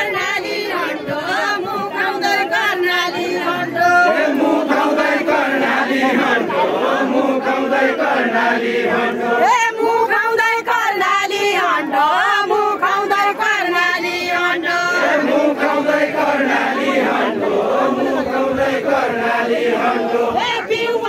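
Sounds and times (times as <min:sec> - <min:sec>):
woman singing: 0:00.0 - 0:04.2, 0:09.4 - 0:15.0, 0:20.3 - 0:21.0
group of voices chanting: 0:00.0 - 0:21.0.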